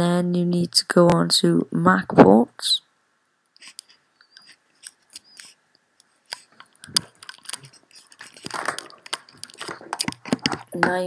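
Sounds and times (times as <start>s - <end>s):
crunchy crackles: 6.2s - 10.9s
computer mouse clicking: 6.3s - 10.9s.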